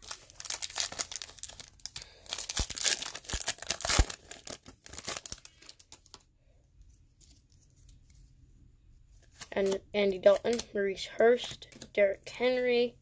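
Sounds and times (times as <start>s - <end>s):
foil wrapper tearing and crinkling: 0.0s - 6.0s.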